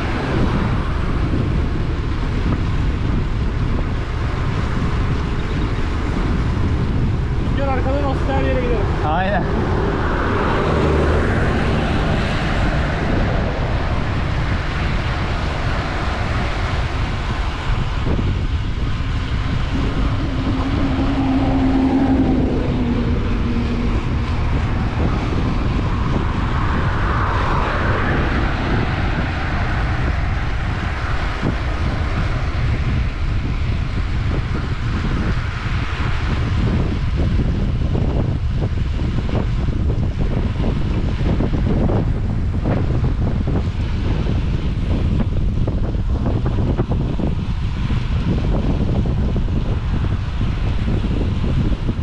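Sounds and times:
bike tyres rumbling on asphalt: 0.0 - 52.0
low hum: 0.0 - 52.0
wind rush on microphone: 0.0 - 52.0.

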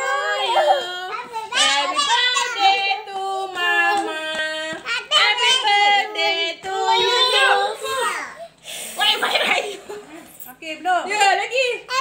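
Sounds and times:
child singing: 0.0 - 8.4.

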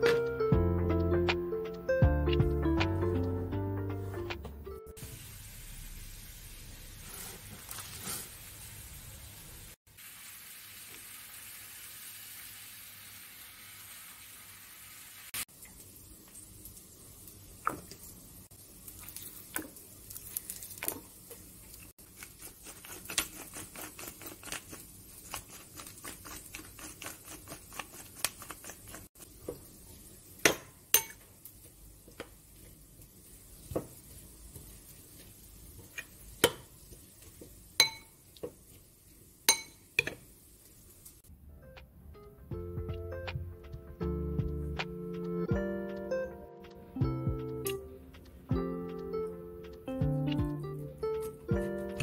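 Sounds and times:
steady hiss: 5.0 - 18.9.

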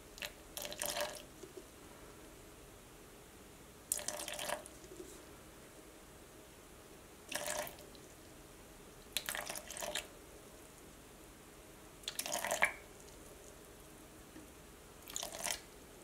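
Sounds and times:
water pouring into jar: 3.9 - 4.7, 7.3 - 7.8, 9.2 - 10.1, 12.1 - 12.8, 15.1 - 15.6.

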